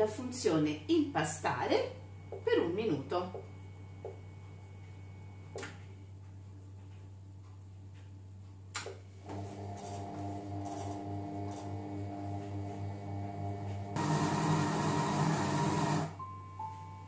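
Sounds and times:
food processor motor humming: 0:09.2 - 0:16.2.

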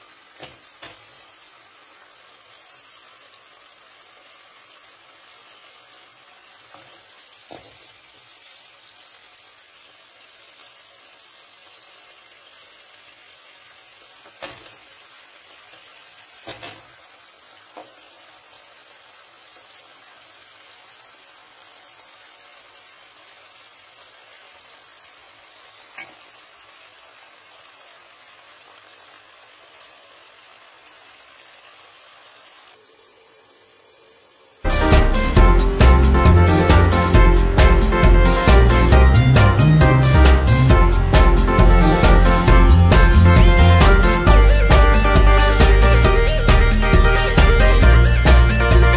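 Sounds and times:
food sizzling in a pan: 0:00.0 - 0:48.9
loud music: 0:34.7 - 0:48.9.

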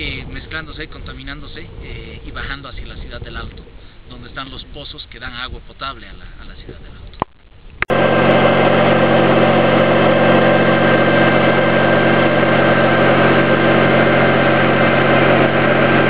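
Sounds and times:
drilling rig engine droning: 0:07.9 - 0:16.0.

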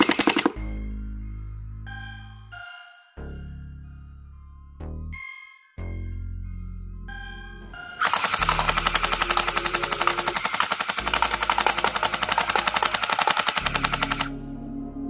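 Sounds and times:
gel blaster firing full auto: 0:00.0 - 0:00.6, 0:08.0 - 0:14.4.

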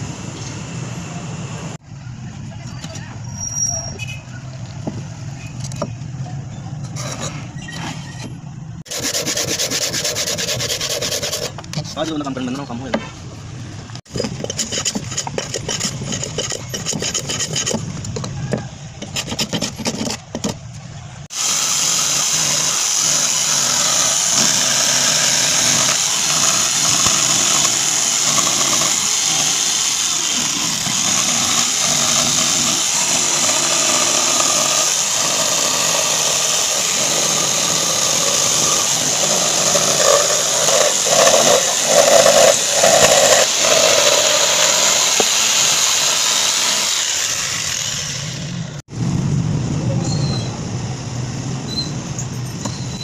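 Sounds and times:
electric jigsaw cutting wood: 0:08.9 - 0:11.6, 0:21.3 - 0:48.8
hand plane scraping wood: 0:08.9 - 0:12.1, 0:14.1 - 0:18.4, 0:19.0 - 0:20.6, 0:24.3 - 0:47.0.

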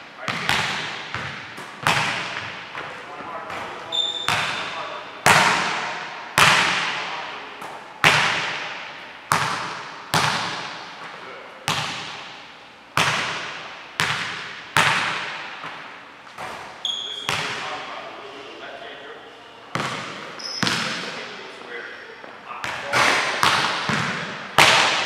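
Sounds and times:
basketball bouncing on gym floor: 0:00.2 - 0:10.9, 0:11.7 - 0:12.4, 0:13.0 - 0:17.6, 0:19.7 - 0:21.1, 0:22.6 - 0:25.0.

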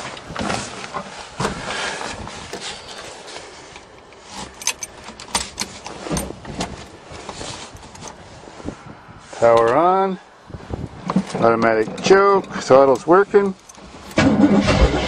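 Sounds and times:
rustling: 0:00.0 - 0:09.6.

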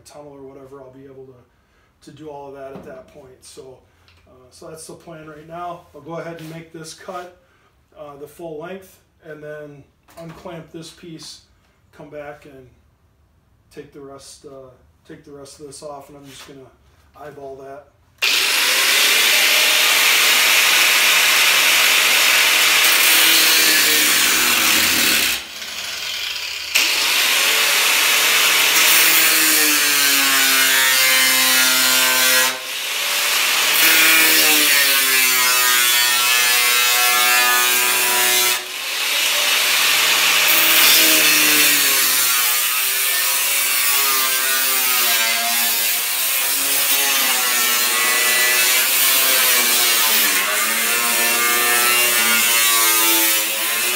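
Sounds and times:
angle grinder cutting metal: 0:18.2 - 0:53.9.

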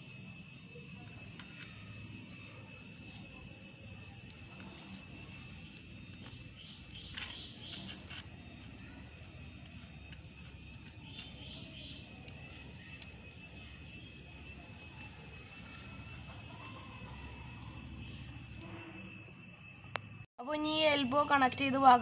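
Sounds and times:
screwdriver scraping clicks: 0:07.0 - 0:11.6.

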